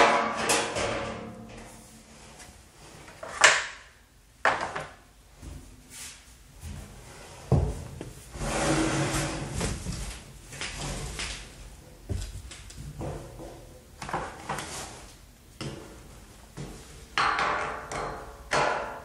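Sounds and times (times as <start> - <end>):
tray scraping on workbench: 8.3 - 9.7.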